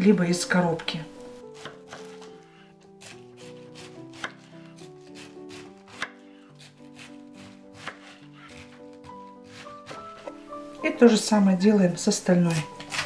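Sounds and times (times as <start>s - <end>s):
soft background music: 0.0s - 13.0s
knife slicing cabbage: 1.4s - 10.4s, 12.4s - 13.0s.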